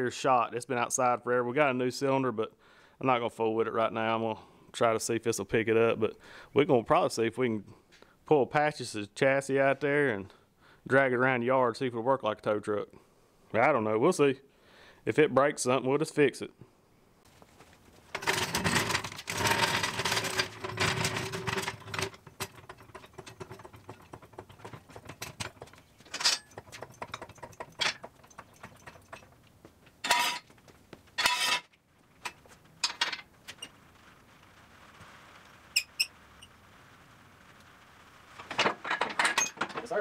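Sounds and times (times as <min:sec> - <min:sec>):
loud rustling and scraping: 0:17.3 - 0:29.3
metal clanks and clicks: 0:18.1 - 0:30.5, 0:38.5 - 0:40.0.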